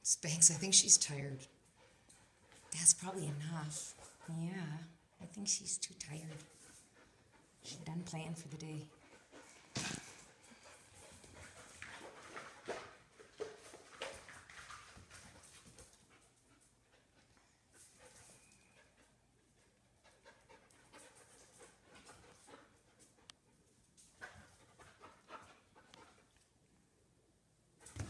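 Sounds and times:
dog panting: 0:00.4 - 0:26.4.

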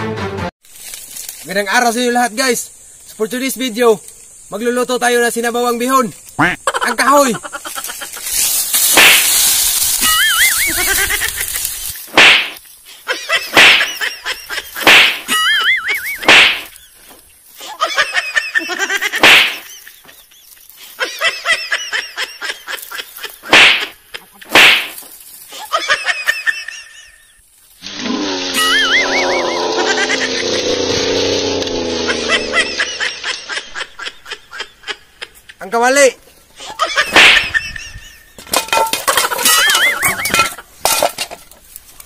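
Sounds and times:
dry branches crashing and rustling: 0:00.6 - 0:01.7, 0:07.6 - 0:12.8, 0:13.5 - 0:17.6, 0:19.1 - 0:19.8, 0:22.7 - 0:25.5, 0:38.4 - 0:42.0.

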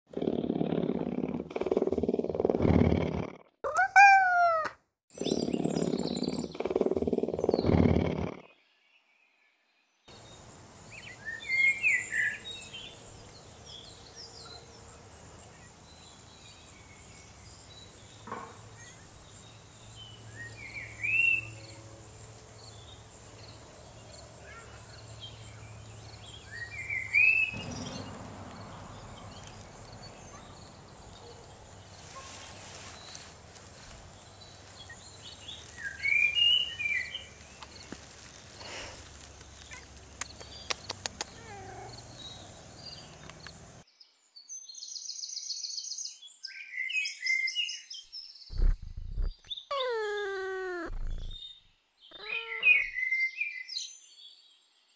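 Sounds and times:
small birds chirping: 0:03.7 - 0:54.7
short rising and falling bird calls: 0:48.5 - 0:53.3.

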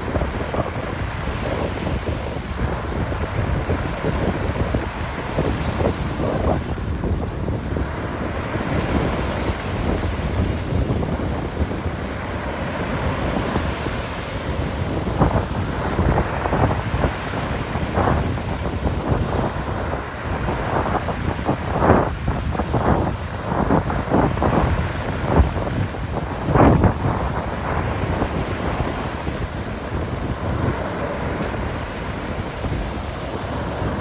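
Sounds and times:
choppy waves breaking: 0:00.0 - 0:34.0
wind buffeting microphone: 0:00.0 - 0:34.0.

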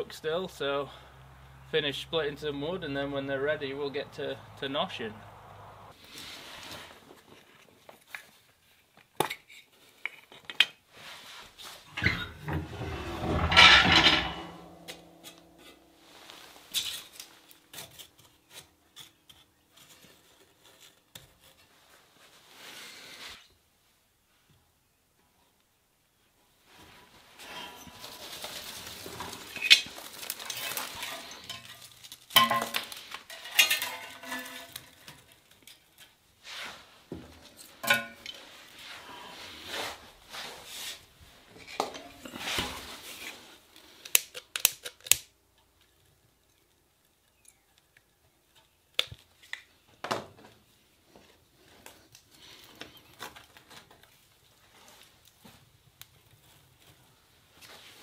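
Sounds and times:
sticks knocking and scraping: 0:06.2 - 0:21.7, 0:27.4 - 0:36.2.

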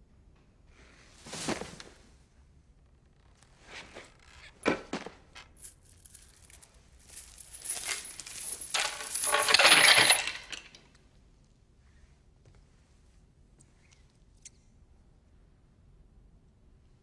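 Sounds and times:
jangling clattering rattle: 0:05.7 - 0:10.8.

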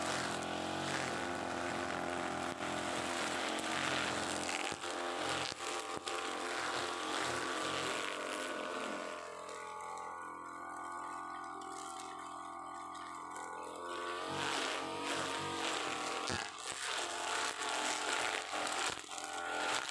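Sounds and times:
brush cutter engine running: 0:00.0 - 0:19.9
nylon line cutting grass: 0:00.0 - 0:19.9.

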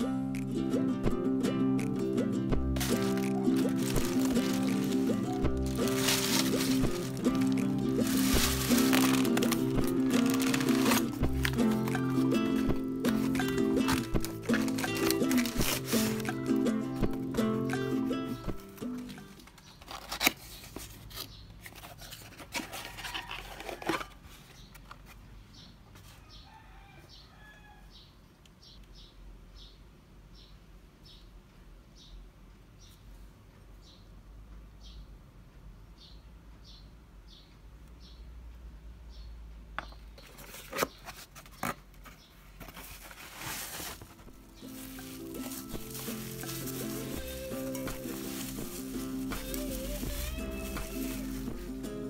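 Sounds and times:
soft music: 0:00.0 - 0:19.5, 0:43.5 - 0:52.0
bubble wrap rustling: 0:02.7 - 0:24.2, 0:40.3 - 0:52.0
cardboard crinkling and tearing: 0:02.8 - 0:17.2, 0:18.5 - 0:24.2, 0:40.2 - 0:51.8.

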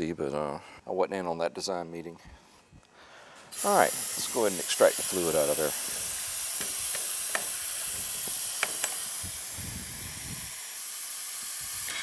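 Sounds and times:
vacuum brake bleeder hissing: 0:03.5 - 0:12.0.

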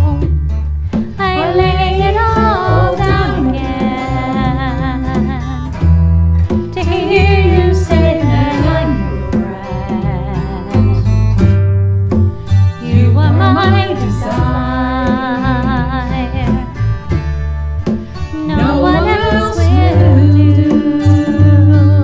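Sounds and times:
congas: 0:00.0 - 0:22.0
electric bass: 0:00.0 - 0:22.0
strummed acoustic guitar: 0:00.0 - 0:22.0
people singing long notes: 0:01.2 - 0:04.8, 0:06.8 - 0:11.0, 0:12.8 - 0:16.0, 0:18.3 - 0:22.0.

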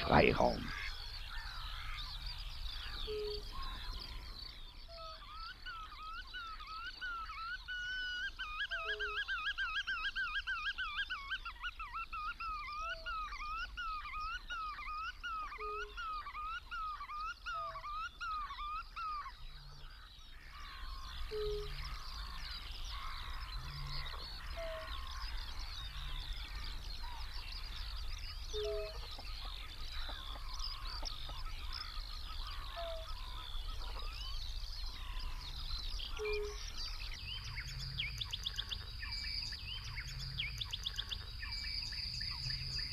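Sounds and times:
chorus of wetland birds: 0:00.0 - 0:42.9
wavering bird call: 0:02.8 - 0:03.9, 0:21.2 - 0:22.4, 0:23.0 - 0:25.2, 0:28.5 - 0:31.4, 0:32.4 - 0:34.1, 0:36.1 - 0:36.8.

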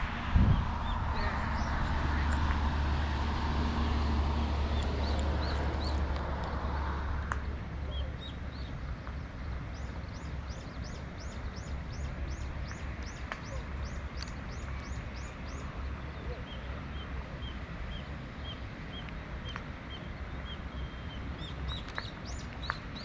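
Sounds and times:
low rumble: 0:00.0 - 0:07.9.

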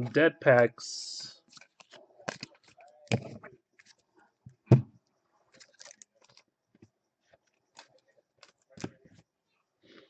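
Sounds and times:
cards clicking and rustling: 0:01.5 - 0:04.0, 0:05.5 - 0:06.5, 0:07.7 - 0:09.1.

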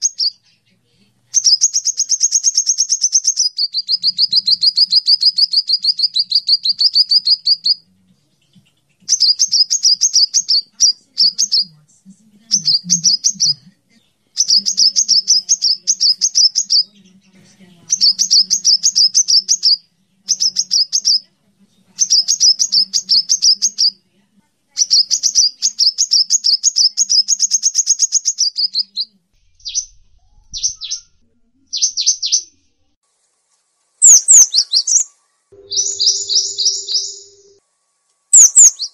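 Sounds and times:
birds singing trilled phrases: 0:00.0 - 0:11.8, 0:12.4 - 0:21.3, 0:21.9 - 0:24.0, 0:24.7 - 0:32.8, 0:34.0 - 0:37.6, 0:38.3 - 0:38.9.

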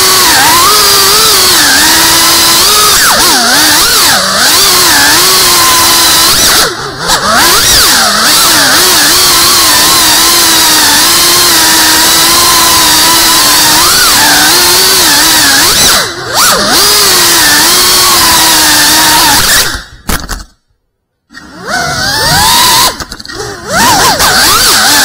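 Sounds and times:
drone motors whining: 0:00.0 - 0:20.5, 0:21.3 - 0:25.0.

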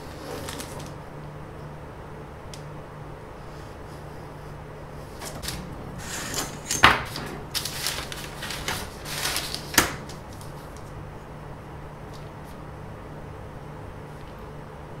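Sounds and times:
paper rustling: 0:00.0 - 0:01.0, 0:05.1 - 0:11.0.

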